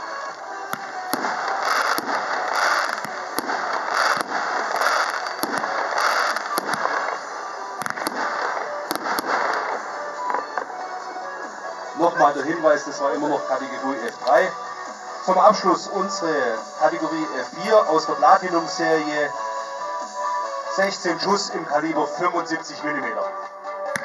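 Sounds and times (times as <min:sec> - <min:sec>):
fireworks bursting with sharp bangs: 0:00.2 - 0:11.9
fireworks hissing: 0:00.6 - 0:10.7.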